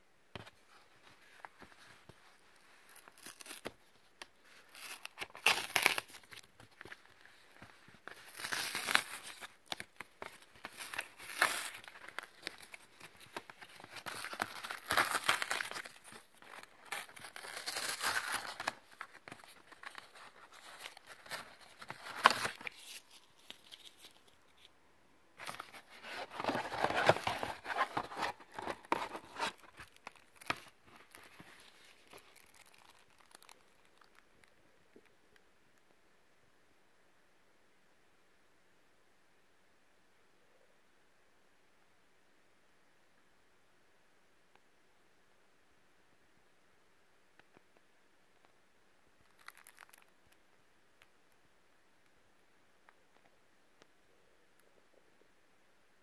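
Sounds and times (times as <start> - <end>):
cardboard tearing: 13.4 - 23.1, 25.4 - 30.7.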